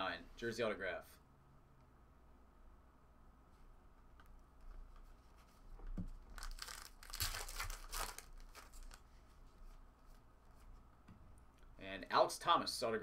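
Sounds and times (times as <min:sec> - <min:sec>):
foil wrapper tearing and crinkling: 0:06.3 - 0:09.0.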